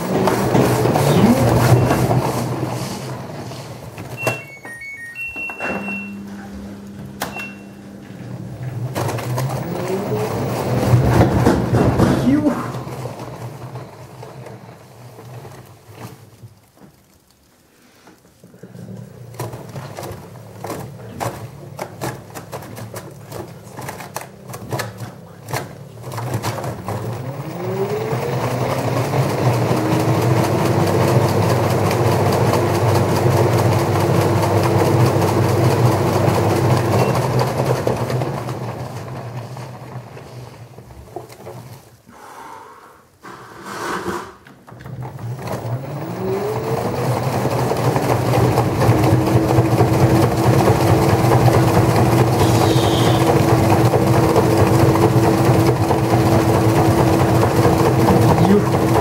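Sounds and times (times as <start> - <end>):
washing machine spin whine: 0.0 - 17.1, 18.9 - 42.1, 44.6 - 59.0
laundry knocking in drum: 11.0 - 12.6.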